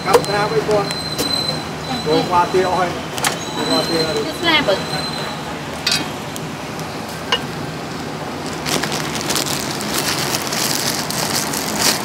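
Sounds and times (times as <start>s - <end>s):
street food stall noise: 0.0s - 12.0s
crackling rustling handling: 7.9s - 12.0s.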